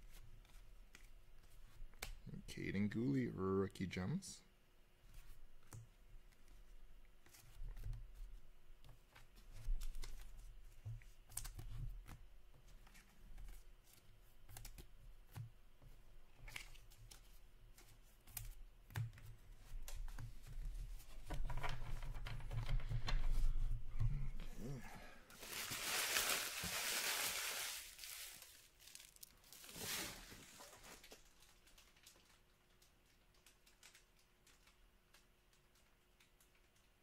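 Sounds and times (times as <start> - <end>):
plastic wrappers rustling: 25.3 - 35.9.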